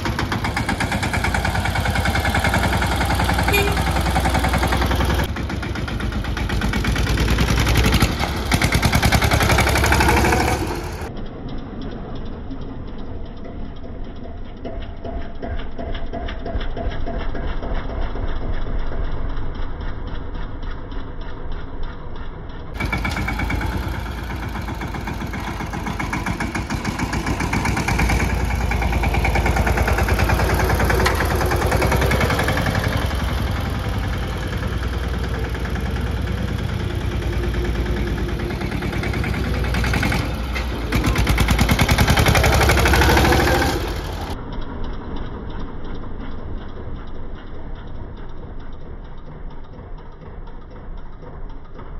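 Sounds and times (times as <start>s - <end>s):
tractor diesel engine revving: 0.0s - 12.7s, 22.8s - 49.4s.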